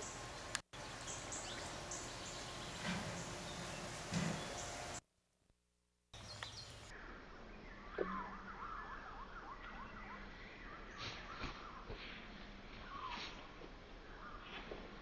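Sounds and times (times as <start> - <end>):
outdoor background noise: 0.0 - 15.0
bird whistled calls: 7.7 - 11.9.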